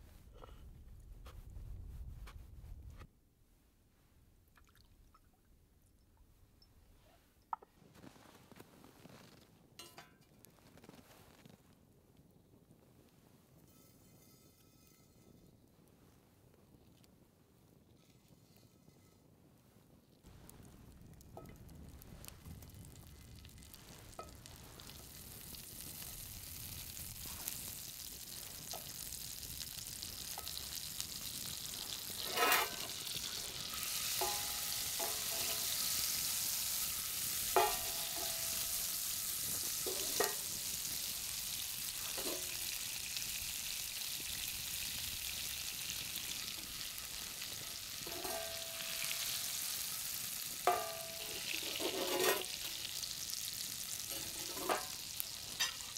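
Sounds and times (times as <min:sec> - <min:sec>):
butter sizzling in a frying pan: 0:20.3 - 0:55.9.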